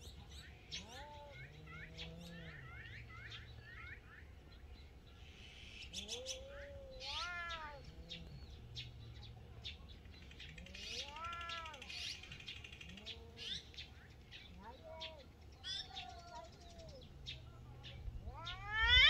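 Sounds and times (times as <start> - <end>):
cats growling: 0.7 - 3.6, 6.0 - 9.3, 10.5 - 11.8, 18.0 - 19.0
cat yowling: 0.8 - 2.6, 6.1 - 8.3, 10.8 - 11.8, 18.2 - 19.0.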